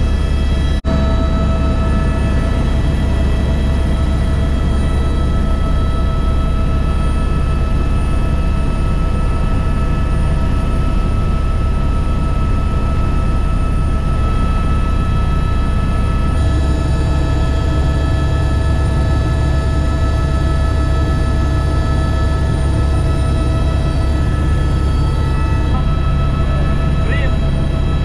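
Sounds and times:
turbine whine: 0.0s - 28.0s
rotor and engine rumble: 14.2s - 28.0s.

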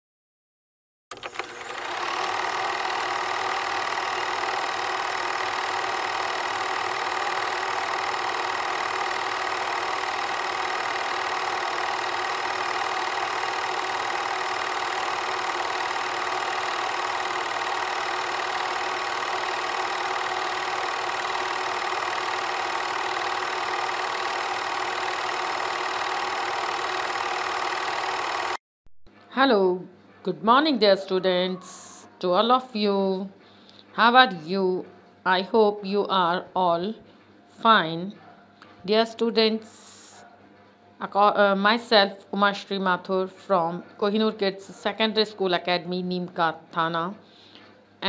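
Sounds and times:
film projector whirring: 1.1s - 28.6s.

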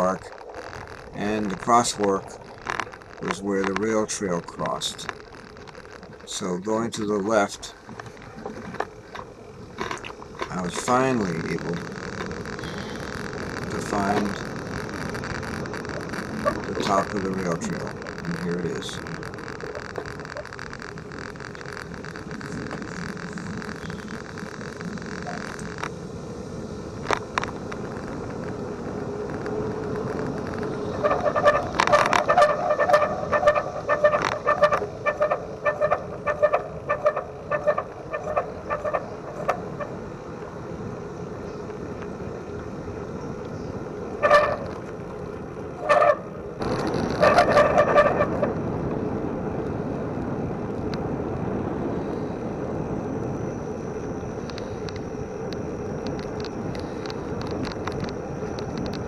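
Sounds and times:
wind and tyre rush: 0.0s - 59.0s
bicycle brakes squealing: 29.4s - 40.0s, 44.2s - 44.8s, 45.8s - 48.6s.

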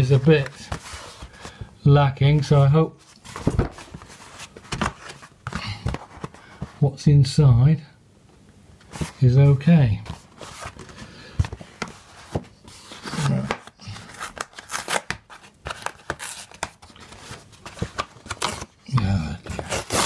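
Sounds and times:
envelope rustling and tearing: 11.6s - 18.8s, 19.4s - 20.0s
person murmuring: 18.9s - 19.6s.

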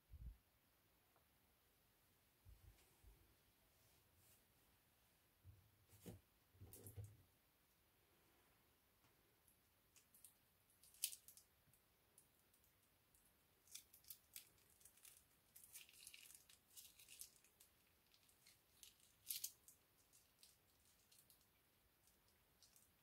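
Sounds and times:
plastic packet crinkling: 13.7s - 21.6s.

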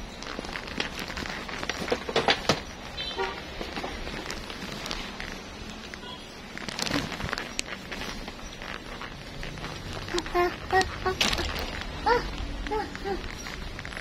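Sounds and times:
shop background noise: 0.0s - 14.0s
knocks and rustles: 0.1s - 5.9s.

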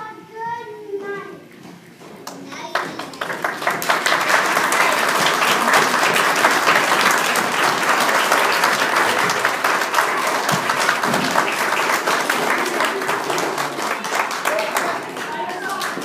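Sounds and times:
audience applauding: 2.3s - 16.0s.

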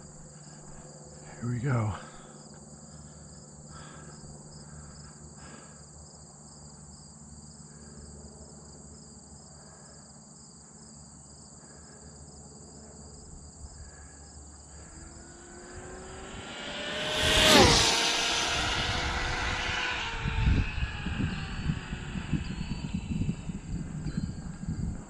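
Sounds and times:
rc car electric motor whine: 14.6s - 25.0s.

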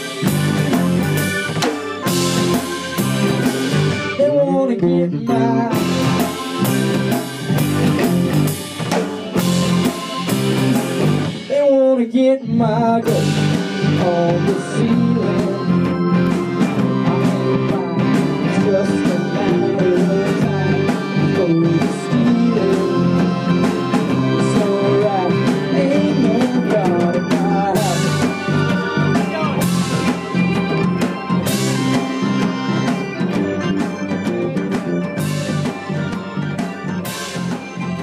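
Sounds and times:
rock band music: 0.0s - 38.0s.

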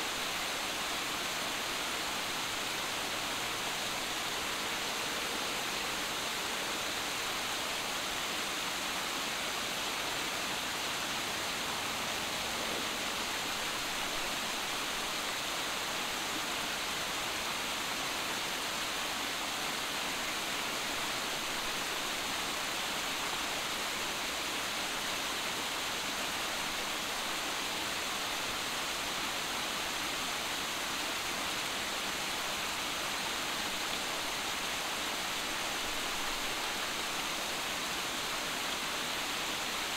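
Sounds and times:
waterfall splashing over rocks: 0.0s - 39.9s.

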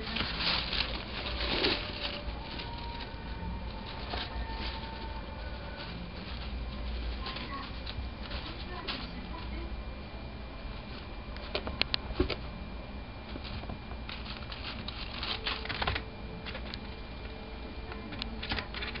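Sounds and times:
sharp clicks of leaves: 0.0s - 9.7s, 13.3s - 16.9s
plastic leaves rustling: 0.0s - 12.5s, 13.2s - 19.0s.

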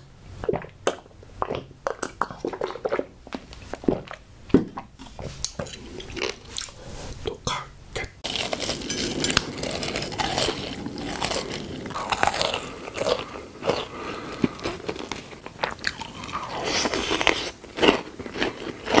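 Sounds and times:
chewing: 4.8s - 6.8s, 8.2s - 19.0s
biting and crunching candy: 8.2s - 19.0s.

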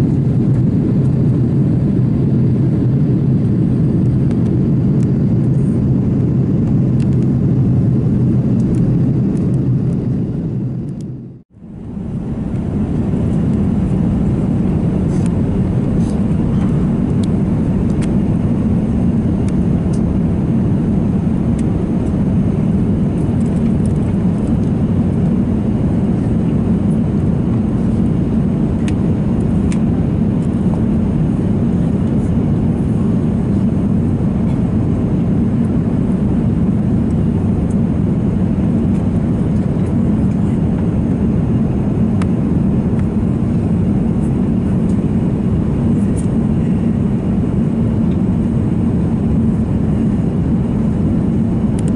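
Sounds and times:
airliner cabin engine rumble: 0.0s - 51.9s.

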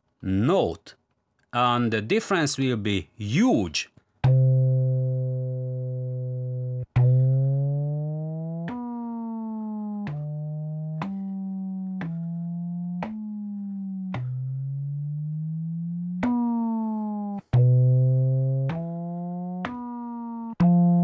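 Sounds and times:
synth line with sliding notes: 4.3s - 12.6s.

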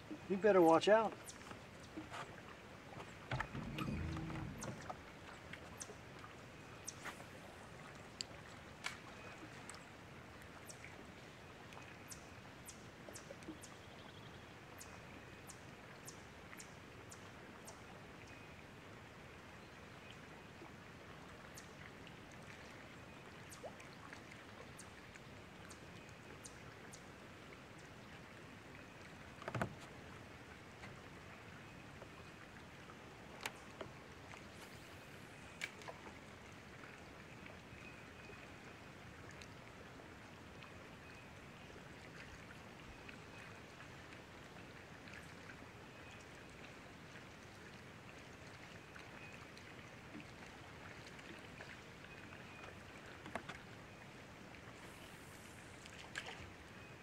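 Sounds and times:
faint steady hiss: 50.6s - 57.0s.

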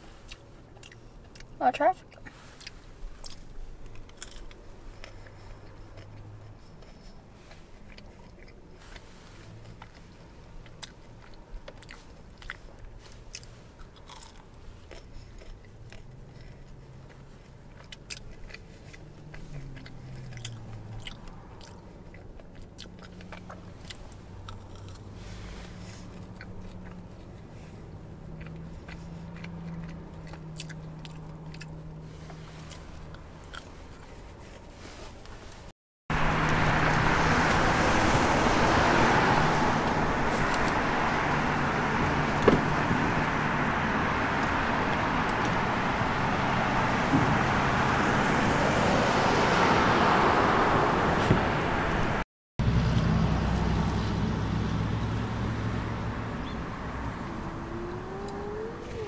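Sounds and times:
person chewing crunchy food: 0.3s - 34.7s.

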